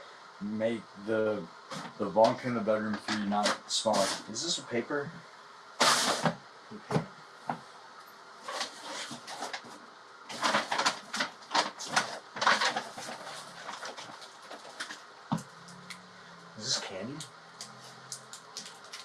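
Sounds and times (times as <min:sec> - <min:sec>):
paper rustling and crinkling: 0:02.9 - 0:04.3, 0:08.4 - 0:15.1, 0:17.6 - 0:19.0.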